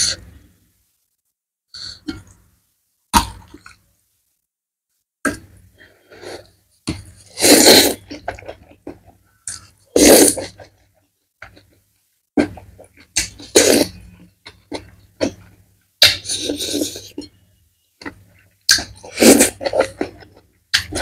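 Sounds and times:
loud noodle slurping: 7.3s - 8.1s, 9.9s - 10.6s, 13.4s - 14.0s, 19.0s - 20.0s.

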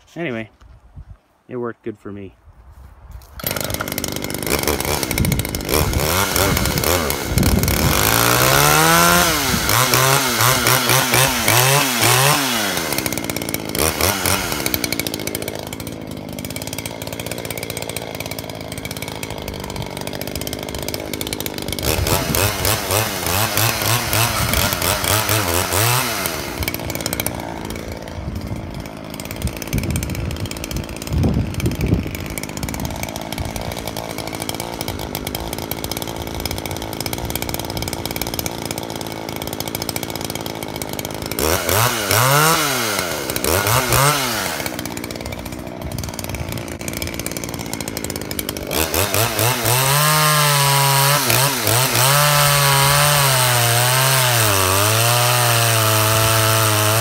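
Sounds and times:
chainsaw revving and idling: 3.2s - 57.0s.

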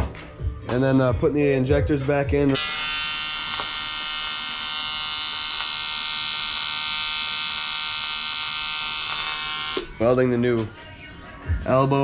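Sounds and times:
welding arc buzzing: 2.5s - 10.0s.

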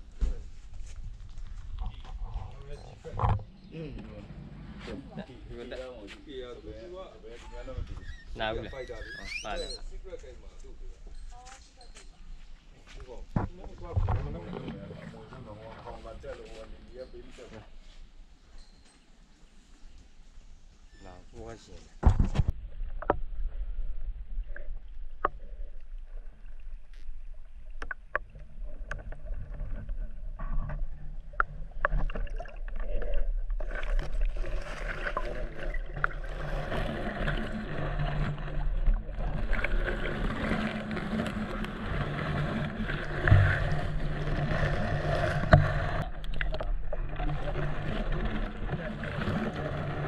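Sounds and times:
underwater low hum: 0.0s - 21.0s, 22.0s - 50.0s
water rushing and sloshing: 23.0s - 50.0s.

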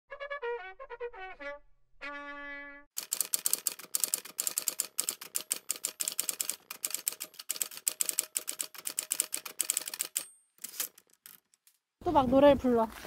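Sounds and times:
typewriter key clicks: 3.0s - 11.4s.

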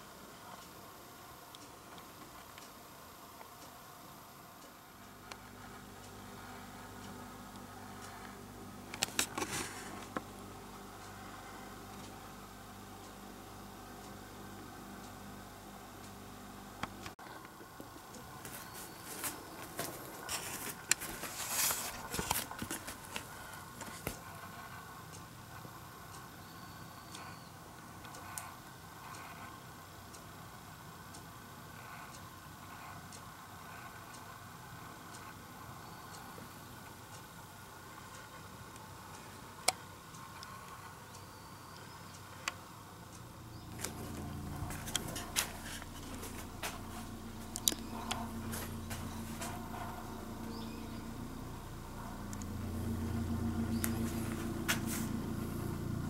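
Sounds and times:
soft rustling: 18.4s - 24.7s
sharp ticks: 38.0s - 56.0s
low rumble: 43.4s - 56.0s.

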